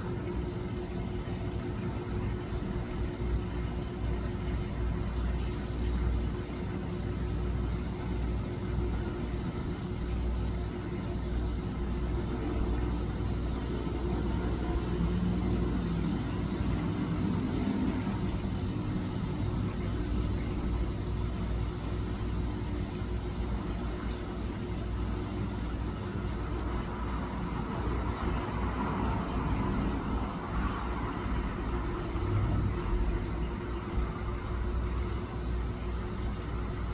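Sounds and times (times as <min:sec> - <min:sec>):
constant low hum: 0:00.0 - 0:36.9
outdoor background rumble: 0:00.0 - 0:36.9.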